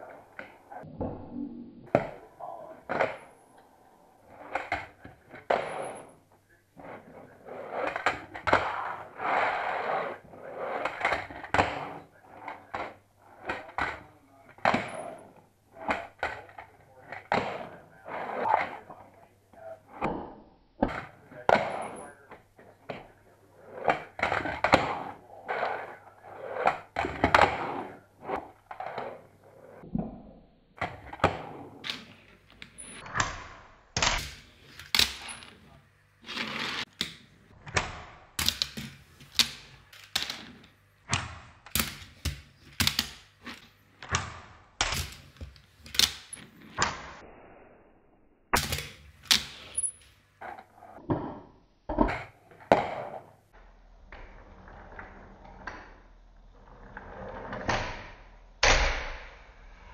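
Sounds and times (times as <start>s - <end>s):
handboard wheels scraping and rolling: 4.3s - 13.8s, 36.2s - 37.0s.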